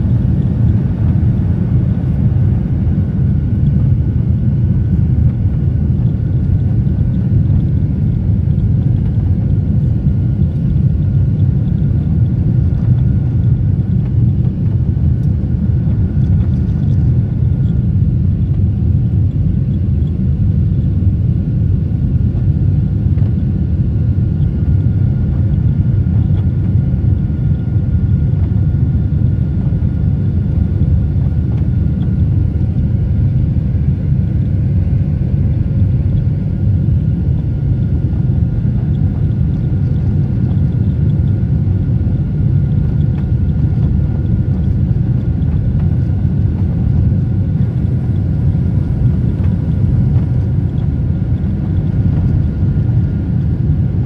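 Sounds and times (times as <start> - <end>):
faint steady whine: 0.0 - 54.0
jet engine cabin rumble: 0.0 - 54.0.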